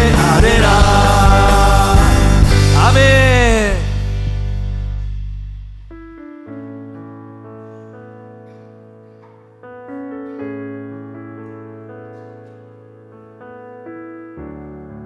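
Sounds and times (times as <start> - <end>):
slow piano chords: 0.0 - 15.0.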